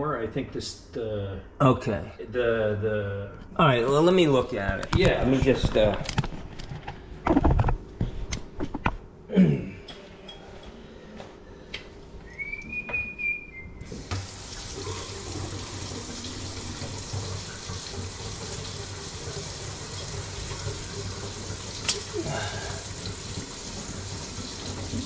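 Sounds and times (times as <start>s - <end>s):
high whistle-like tone: 12.2s - 13.9s
water running into sink: 13.9s - 25.0s.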